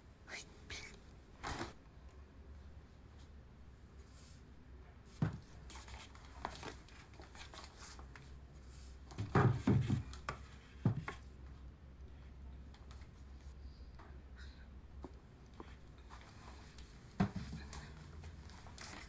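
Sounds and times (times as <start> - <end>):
wooden frames knocking and scraping: 9.1 - 11.2.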